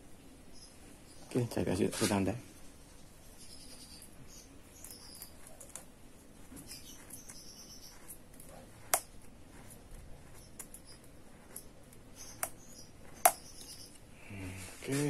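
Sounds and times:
marker scratching on metal: 4.7s - 14.0s.

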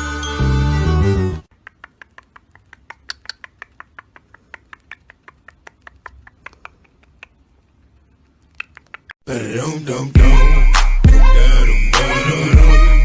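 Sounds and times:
bird beak clicking: 1.5s - 9.2s.

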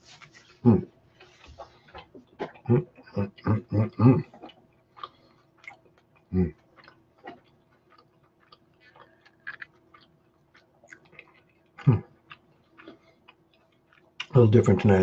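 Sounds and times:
faint steady hum: 0.0s - 15.0s
man chewing food: 0.0s - 15.0s
low vocal sounds: 2.5s - 4.4s.

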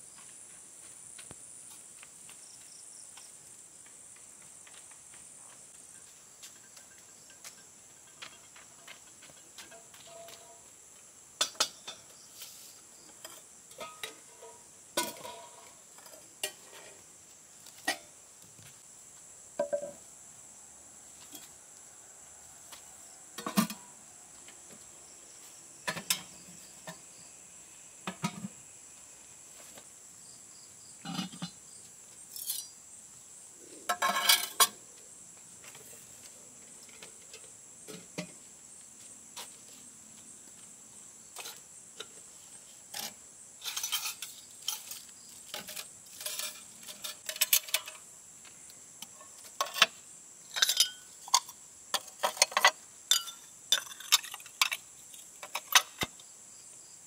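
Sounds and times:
high insect buzz: 5.7s - 52.0s
metal pots and dishes clinking: 13.2s - 16.9s, 31.1s - 31.6s, 33.9s - 34.8s, 43.0s - 45.0s, 45.6s - 48.0s, 50.5s - 54.8s.

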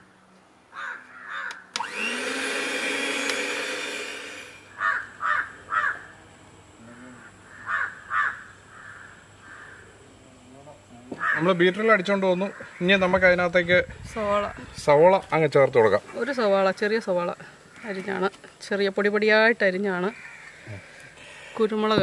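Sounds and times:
crows cawing: 0.7s - 1.8s, 4.7s - 6.2s, 6.8s - 10.0s, 11.1s - 13.3s, 17.7s - 18.3s, 19.9s - 21.9s
electric hand mixer whining: 1.8s - 4.7s.

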